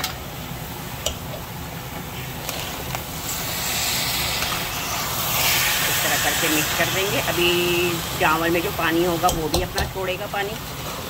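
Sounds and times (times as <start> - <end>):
syrup boiling in a pot: 0.2 - 11.0
metal spoon tapping pot: 9.2 - 9.9.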